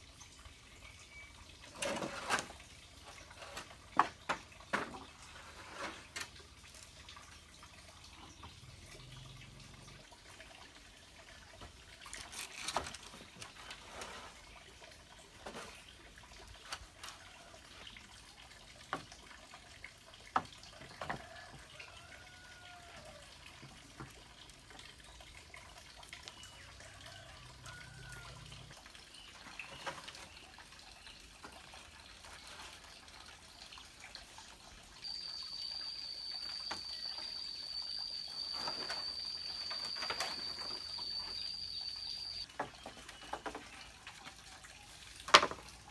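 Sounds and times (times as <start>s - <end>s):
bamboo poles knocking: 45.2s - 45.7s.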